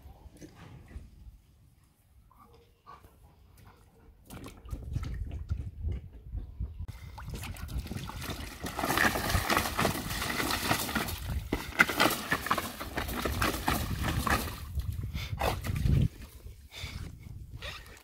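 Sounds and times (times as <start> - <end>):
dog splashing water: 7.2 - 14.6.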